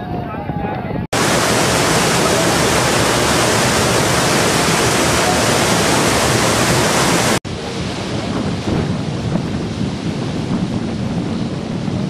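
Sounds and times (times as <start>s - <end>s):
floodwater rushing: 1.1s - 10.2s.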